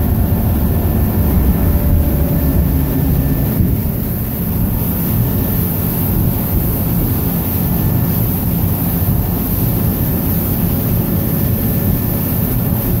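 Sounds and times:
wind buffeting microphone: 0.0s - 8.1s
boat engine drone: 0.0s - 13.0s
rush of boat wake: 0.0s - 13.0s.

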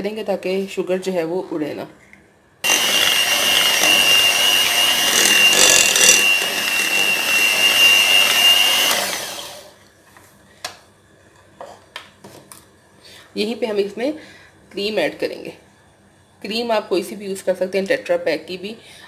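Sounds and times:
electric hand mixer whining: 2.6s - 9.8s.

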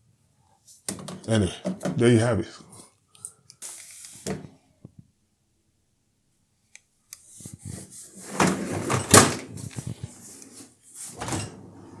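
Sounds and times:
dishwasher racks rattling: 8.3s - 9.5s.

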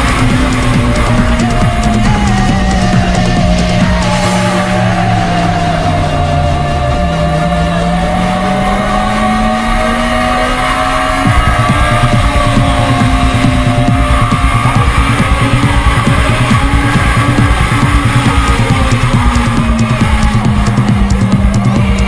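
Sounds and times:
rock music with drum beat: 0.0s - 5.1s, 11.3s - 22.0s
motorcycle engine accelerating: 0.0s - 22.0s.

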